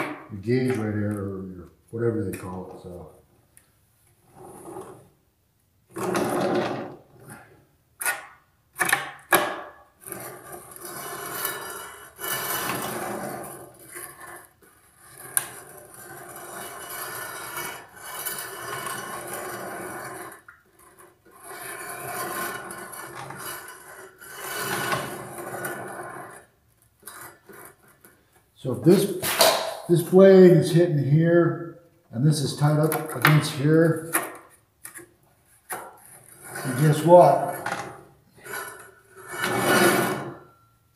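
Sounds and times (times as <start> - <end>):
rubbing and scraping on saw table: 4.2 - 5.1, 10.0 - 28.3, 33.4 - 40.6
sharp knocks: 29.2 - 29.9.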